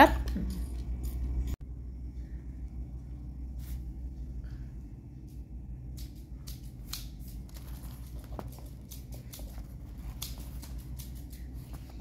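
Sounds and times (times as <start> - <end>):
steady low hum: 0.0 - 12.0
hands handling shoes: 7.5 - 10.6.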